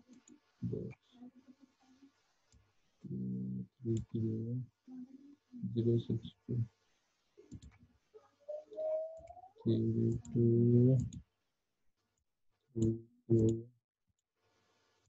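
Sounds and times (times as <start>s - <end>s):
man humming: 3.1s - 4.6s, 5.6s - 6.6s, 9.7s - 11.1s, 12.8s - 13.7s.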